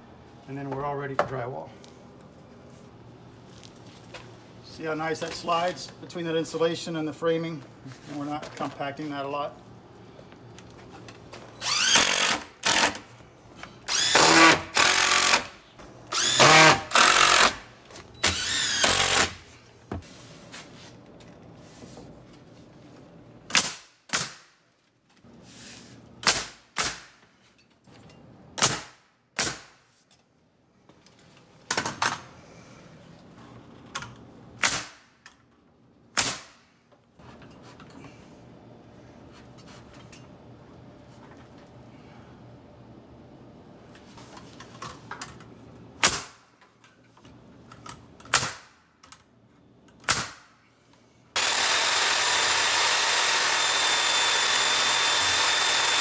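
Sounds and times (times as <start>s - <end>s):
cordless drill whirring: 11.6s - 13.0s, 13.9s - 15.5s, 16.1s - 17.6s, 18.2s - 19.4s, 51.4s - 56.0s
pneumatic nailer shots: 11.6s - 13.1s, 13.8s - 19.5s, 23.5s - 24.6s, 26.2s - 27.2s, 28.6s - 29.8s, 34.6s - 35.2s, 36.1s - 36.7s, 46.0s - 46.5s, 48.3s - 48.8s, 50.0s - 50.7s, 51.4s - 56.0s.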